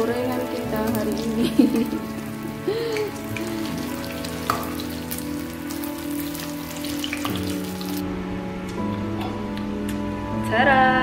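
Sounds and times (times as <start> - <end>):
hot oil sizzling: 0.0 - 8.0
background music: 0.0 - 11.0.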